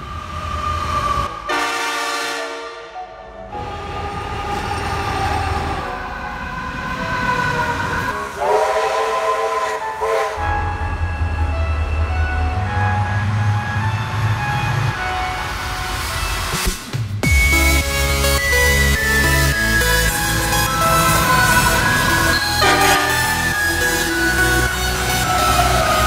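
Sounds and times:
diesel locomotives passing: 0:00.0 - 0:26.0
multi-note locomotive horn: 0:01.3 - 0:05.0, 0:08.0 - 0:11.1, 0:22.6 - 0:24.2.

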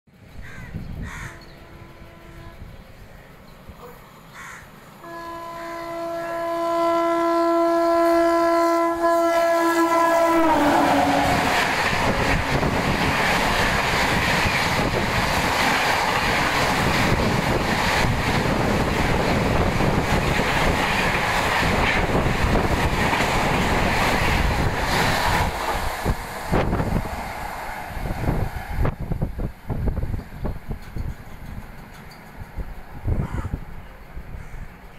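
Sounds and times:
train rumble and wheel clatter: 0:00.1 - 0:34.9
locomotive horn blast: 0:01.2 - 0:02.8, 0:05.0 - 0:12.8.

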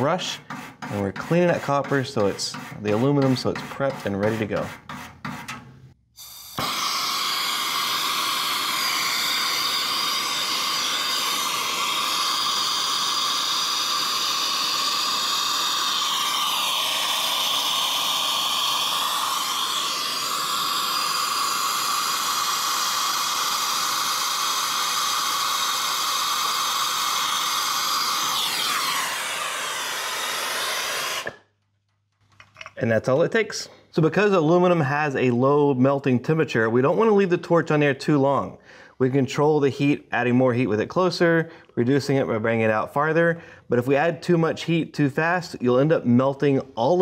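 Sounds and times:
torch flame hissing: 0:06.2 - 0:31.4.

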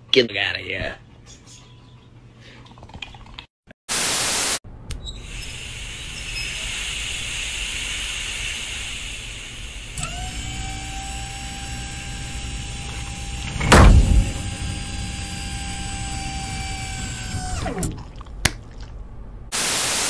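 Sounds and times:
machine hiss and hum: 0:05.2 - 0:17.7, 0:19.5 - 0:20.0
motor whine: 0:05.2 - 0:18.0
heavy press thump: 0:13.3 - 0:16.0.

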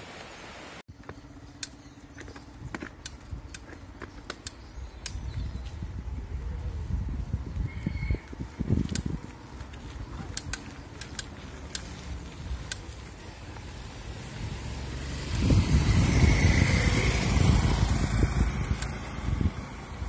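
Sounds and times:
wind and tyre rumble: 0:00.0 - 0:20.0
motorcycle passing: 0:09.3 - 0:20.0
light clicks: 0:10.3 - 0:12.0.

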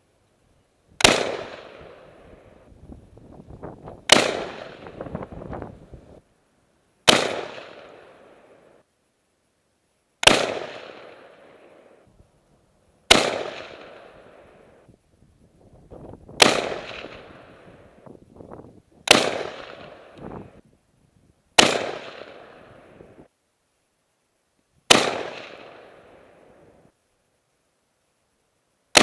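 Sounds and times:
rifle shots: 0:01.0 - 0:02.2, 0:04.0 - 0:05.3, 0:07.1 - 0:08.4, 0:10.2 - 0:11.6, 0:13.1 - 0:14.4, 0:16.3 - 0:17.7, 0:19.0 - 0:20.2, 0:21.6 - 0:22.8, 0:24.9 - 0:26.2.

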